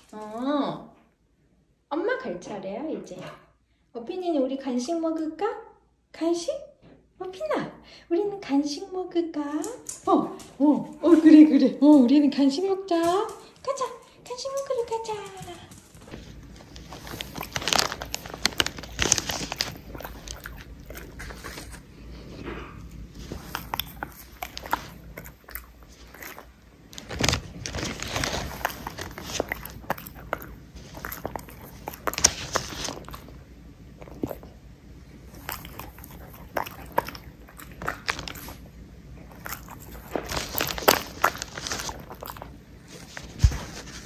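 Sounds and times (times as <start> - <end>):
dog crunching a hard treat: 14.5 - 34.6, 35.2 - 44.0.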